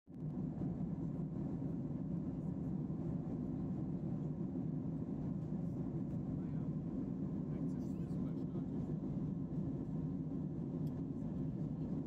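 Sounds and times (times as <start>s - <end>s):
airliner cabin drone: 0.1s - 12.0s.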